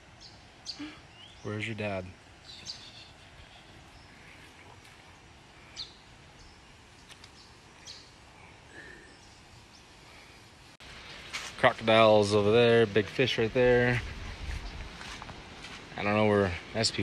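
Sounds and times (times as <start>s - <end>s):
faint outdoor ambience: 0.0s - 17.0s
high bird chirps: 2.4s - 4.3s.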